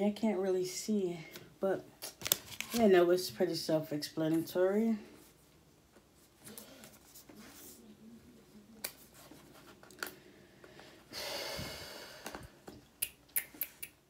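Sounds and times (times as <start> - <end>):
packaging handling: 2.0 - 2.9
breathy rush of noise: 10.2 - 12.6.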